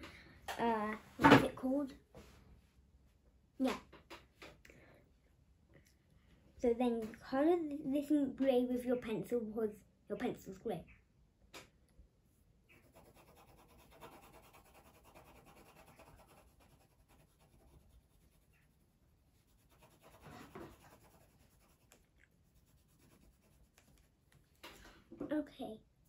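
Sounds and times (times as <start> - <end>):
pencil scratching on paper: 12.7 - 24.1.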